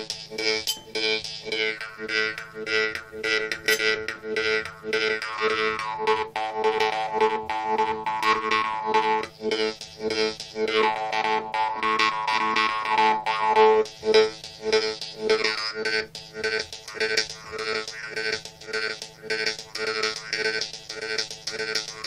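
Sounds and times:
jaw harp twanging: 0:00.7 - 0:01.1.

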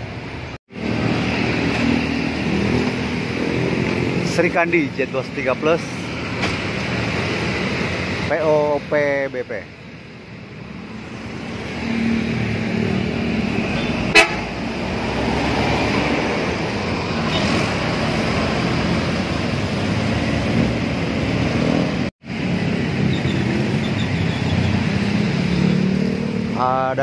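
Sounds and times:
road traffic: 0:00.0 - 0:27.0
short horn toot: 0:14.1 - 0:14.5.

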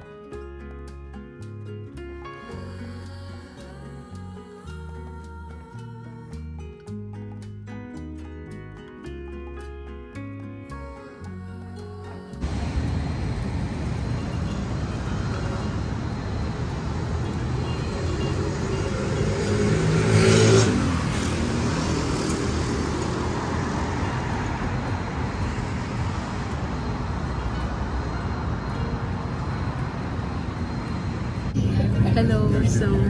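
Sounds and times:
road traffic noise: 0:00.0 - 0:33.0
vehicle passing: 0:12.4 - 0:33.0.

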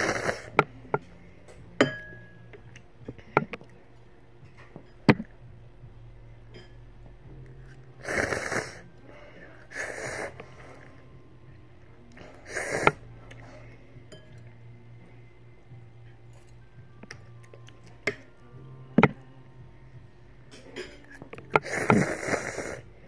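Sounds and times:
slurping noodles: 0:00.0 - 0:00.5, 0:08.0 - 0:08.8, 0:12.4 - 0:13.0, 0:21.6 - 0:22.8.

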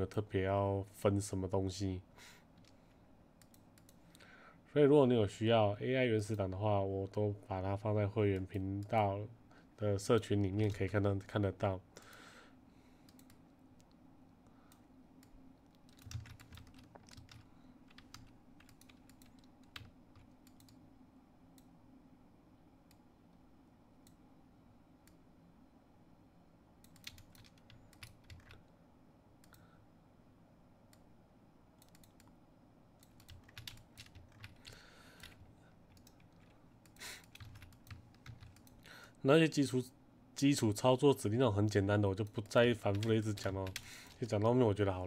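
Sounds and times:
faint steady hum: 0:00.0 - 0:45.0
keyboard and mouse clicks: 0:03.4 - 0:04.2, 0:13.0 - 0:14.0, 0:14.7 - 0:20.8, 0:26.8 - 0:28.6, 0:31.8 - 0:32.4, 0:33.0 - 0:38.9.

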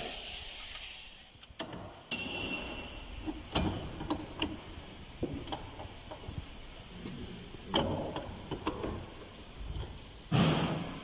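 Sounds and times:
hiss: 0:00.0 - 0:01.4
metallic clink: 0:02.1 - 0:03.2.

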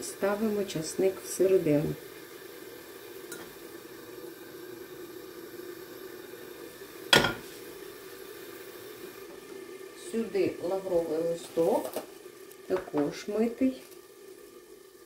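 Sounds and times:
frying pan sizzling: 0:00.0 - 0:15.0
cookware clink: 0:07.1 - 0:07.5.

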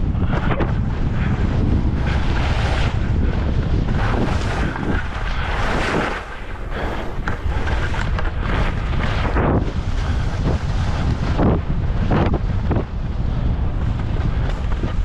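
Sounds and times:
wind buffeting microphone: 0:00.0 - 0:15.0
skis hissing over snow: 0:02.0 - 0:11.4.

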